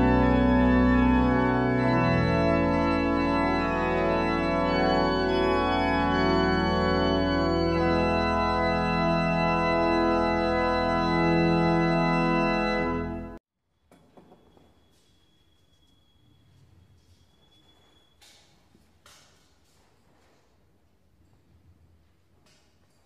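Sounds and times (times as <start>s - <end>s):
church pipe organ chords: 0.0s - 13.4s.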